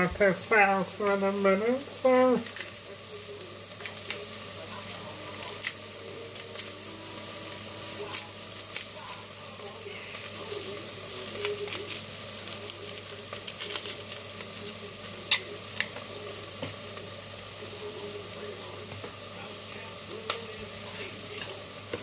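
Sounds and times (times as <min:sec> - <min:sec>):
onions sizzling in a frying pan: 0:00.0 - 0:22.0.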